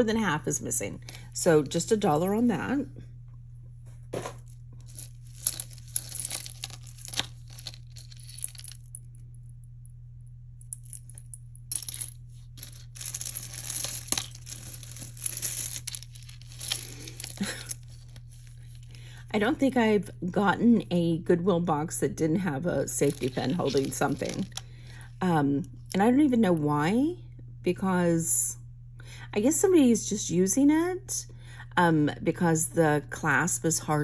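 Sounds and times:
low hum: 0.0s - 33.4s
beads clicking and clinking: 4.9s - 9.0s, 10.7s - 17.8s, 23.0s - 24.6s.

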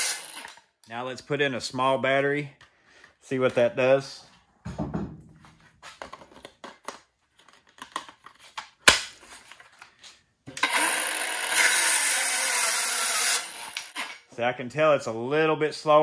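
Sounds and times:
circular saw cutting wood: 0.0s - 0.6s, 10.6s - 14.3s.

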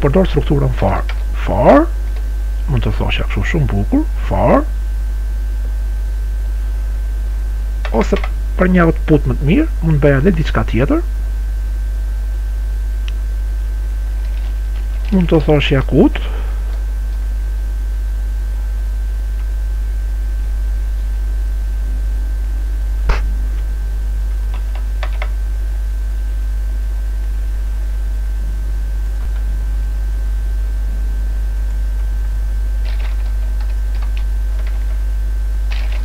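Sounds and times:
steady low hum: 0.0s - 36.0s
keyboard keystrokes: 7.8s - 8.3s, 24.5s - 25.3s, 32.8s - 35.0s, 35.7s - 36.0s.

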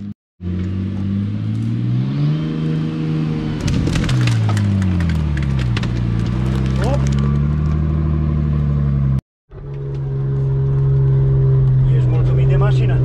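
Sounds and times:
off-road vehicle engine under load: 0.0s - 13.0s
sticks snapping under tyres: 3.6s - 7.8s.

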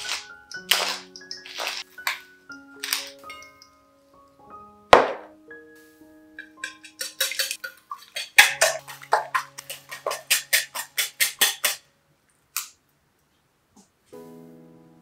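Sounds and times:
soft background music: 0.0s - 12.2s, 14.1s - 15.0s
whisk clicking against bowl: 6.4s - 11.8s.

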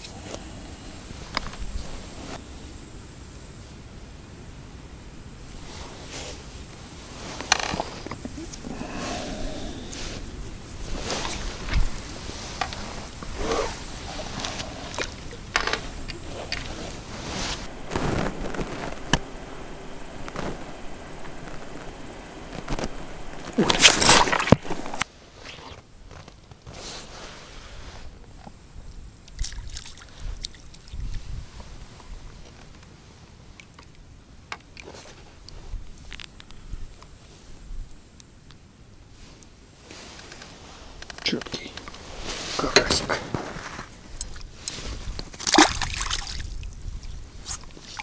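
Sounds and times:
water splashing and sloshing: 16.3s - 25.0s, 45.3s - 46.6s
low handling bumps: 17.5s - 25.0s.

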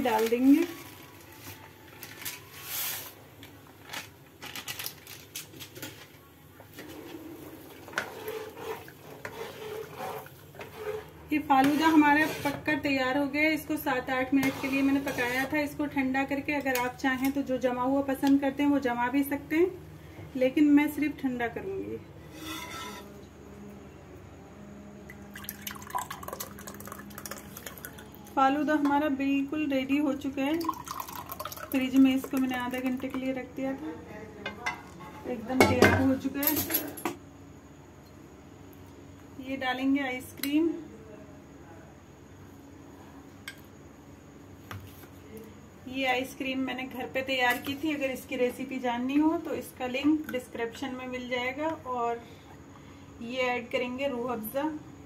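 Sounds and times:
faint steady hum: 0.0s - 55.0s
metal ladle stirring in pot: 7.4s - 12.7s, 14.4s - 15.5s
liquid pouring: 25.3s - 28.4s, 30.5s - 33.1s.

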